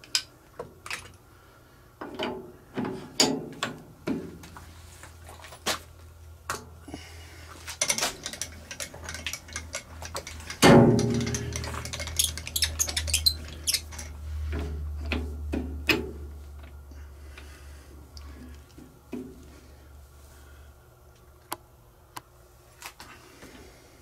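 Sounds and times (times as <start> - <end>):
steady low hum: 0.0 - 24.0
metal tools clicking and knocking: 7.8 - 14.2
loud metallic clank: 10.6 - 11.9.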